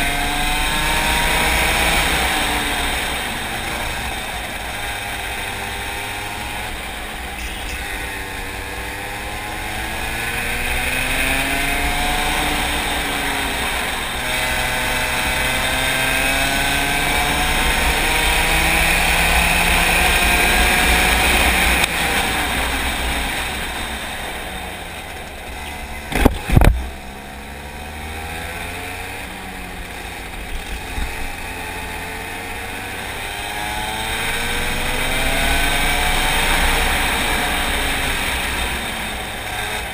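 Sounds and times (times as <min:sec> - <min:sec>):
racing kart engine revving: 0:00.0 - 0:39.9.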